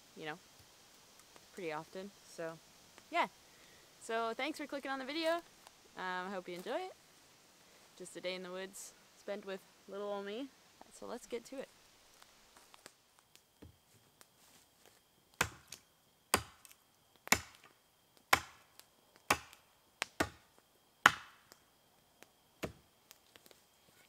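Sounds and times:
hatchet chopping wood: 15.4s - 17.7s, 18.3s - 18.7s, 19.3s - 20.4s, 21.0s - 21.5s, 22.6s - 22.8s.

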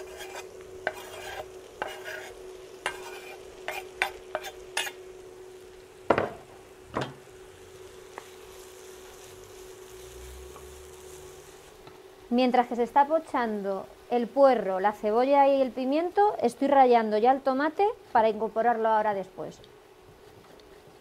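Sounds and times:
knife scraping chopping board: 0.0s - 5.0s
stirring in frying pan: 0.0s - 5.5s
light sizzle: 0.0s - 21.0s
chopping board knocks: 6.1s - 6.4s.

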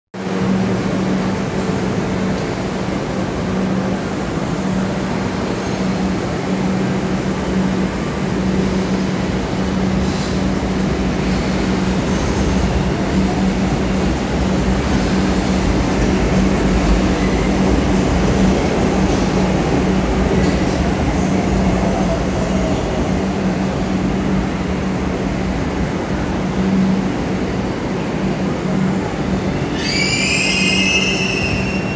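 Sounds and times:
train wheels rumbling: 0.2s - 31.9s.

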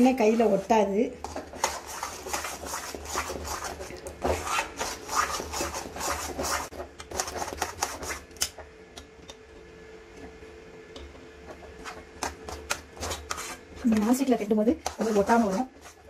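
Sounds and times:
spoon scraping metal pan: 0.2s - 7.3s, 14.8s - 16.0s.

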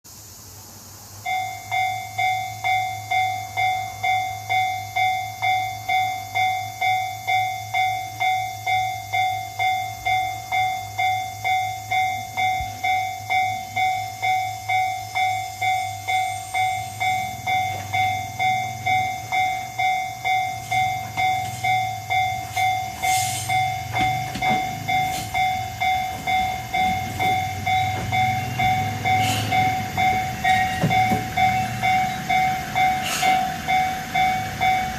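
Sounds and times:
diesel railcar rumble: 0.1s - 34.9s
level crossing bell ringing: 1.3s - 34.9s
brake hiss: 10.4s - 34.9s.

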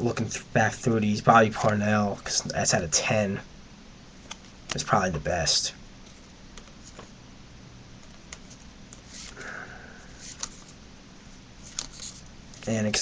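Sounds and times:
low room hum: 0.0s - 13.0s
trading cards clicking and rustling: 4.2s - 5.3s, 6.1s - 7.1s, 8.0s - 10.8s, 11.6s - 13.0s
short breathy sound: 9.4s - 10.2s.

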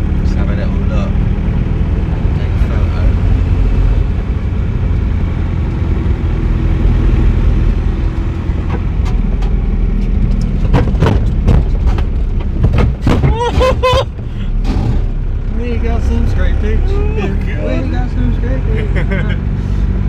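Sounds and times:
engine and road rumble in cabin: 0.0s - 20.0s.

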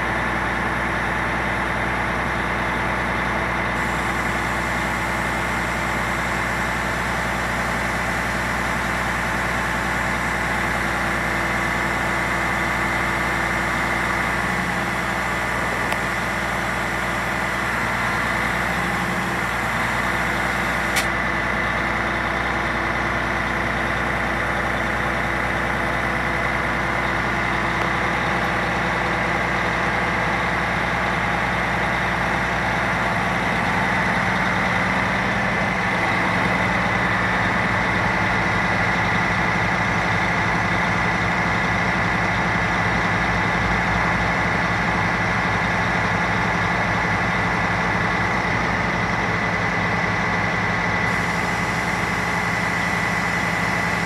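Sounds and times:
crane high whine: 0.0s - 54.0s
diesel truck engine running: 0.0s - 54.0s.

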